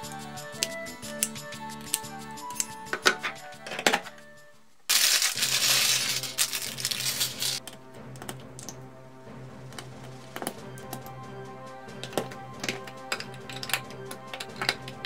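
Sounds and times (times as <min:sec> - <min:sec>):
background music: 0:00.0 - 0:15.0
plastic pieces clicking together: 0:00.5 - 0:04.2, 0:04.9 - 0:08.8, 0:12.0 - 0:15.0
plastic bag tearing and rustling: 0:04.9 - 0:07.6.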